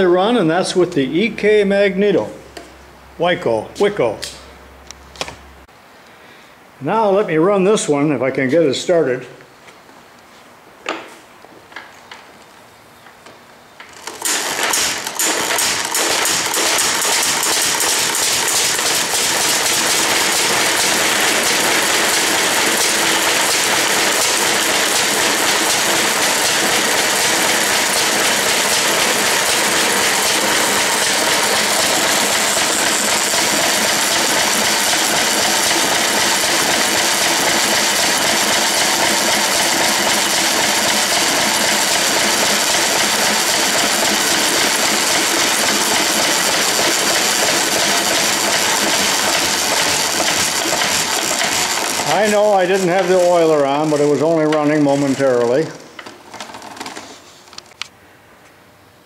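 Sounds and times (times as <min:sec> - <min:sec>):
old engine running with clatter: 0:13.9 - 0:57.1.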